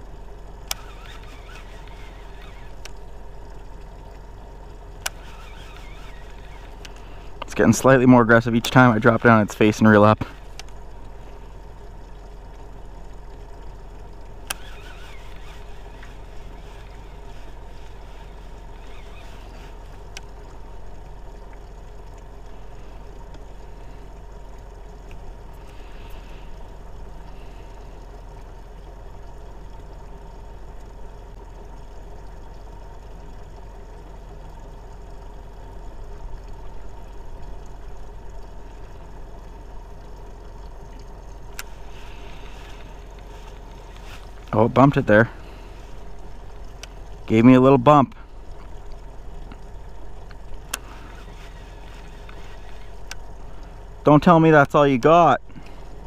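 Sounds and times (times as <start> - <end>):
boat engine low hum: 0.0 - 56.0
faint clicks: 0.6 - 4.3, 4.9 - 7.6, 10.2 - 29.0, 36.0 - 44.6, 45.4 - 47.3, 48.1 - 53.8.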